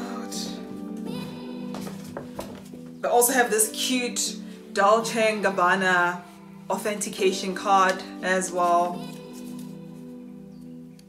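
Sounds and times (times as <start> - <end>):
soft sustained background music: 0.0 - 11.0.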